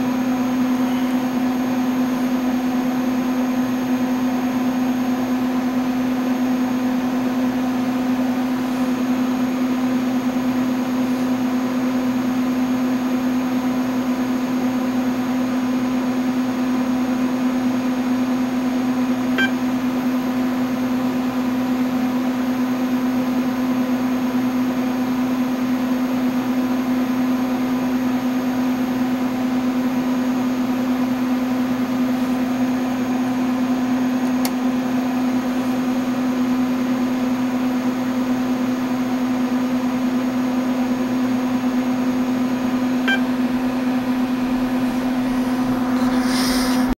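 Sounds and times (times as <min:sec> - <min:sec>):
terminal bell beep: 0:19.4 - 0:19.6, 0:43.1 - 0:43.4
computer fans humming: 0:40.8 - 0:46.9.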